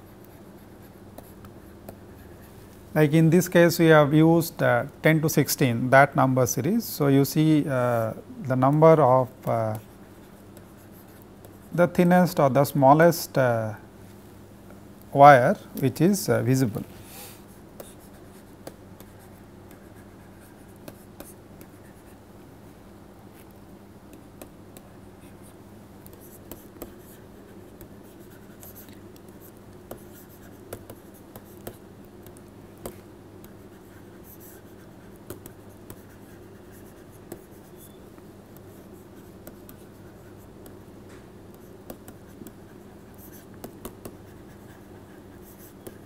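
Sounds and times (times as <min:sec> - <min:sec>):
steady low hum: 0:00.0 - 0:46.0
stylus tapping on tablet screen: 0:30.7 - 0:33.6, 0:41.5 - 0:42.6, 0:43.2 - 0:44.2.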